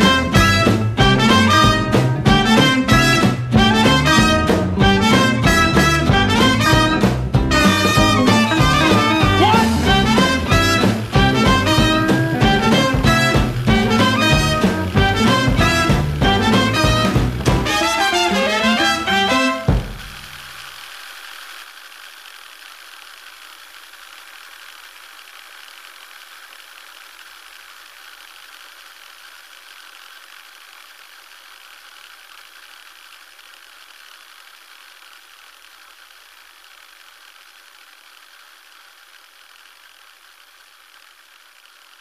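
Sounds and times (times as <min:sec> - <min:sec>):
faint steady hiss: 0:00.0 - 0:42.0.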